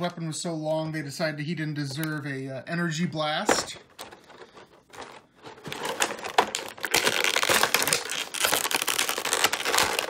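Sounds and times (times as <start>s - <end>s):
plastic packaging crinkling: 3.4s - 10.0s.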